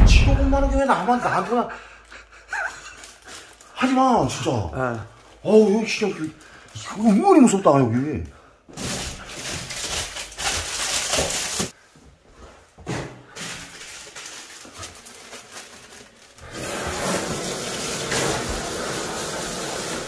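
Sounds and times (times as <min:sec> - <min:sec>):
plastic packaging crinkling: 0:02.5 - 0:07.7, 0:08.7 - 0:11.8, 0:13.4 - 0:18.5.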